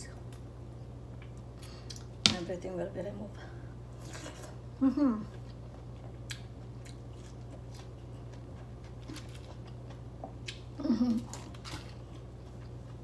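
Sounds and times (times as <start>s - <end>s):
steady low hum: 0.0s - 13.0s
person chewing: 5.3s - 13.0s.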